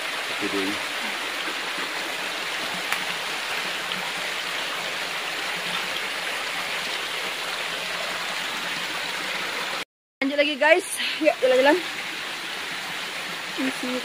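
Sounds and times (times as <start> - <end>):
stream flowing over rocks: 0.0 - 14.0.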